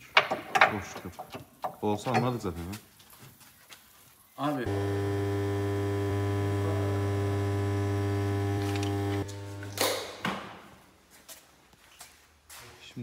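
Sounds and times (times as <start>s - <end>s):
electric motor humming: 4.7s - 10.1s.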